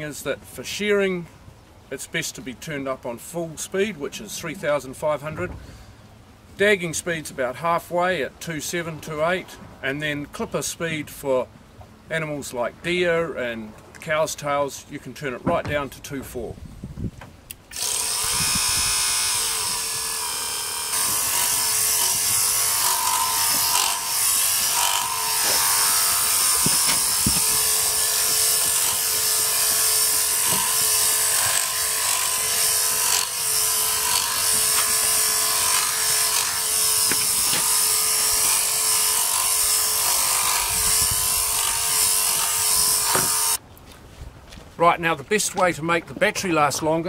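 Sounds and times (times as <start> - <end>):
sheep clipper whining: 17.7 - 41.0, 41.6 - 43.6.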